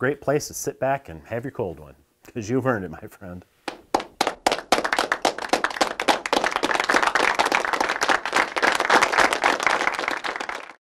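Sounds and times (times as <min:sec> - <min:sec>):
many hands clapping: 0:03.6 - 0:10.8.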